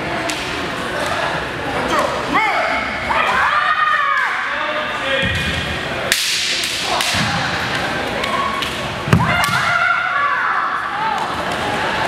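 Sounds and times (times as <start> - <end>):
bamboo swords clacking: 6.1 - 8.8.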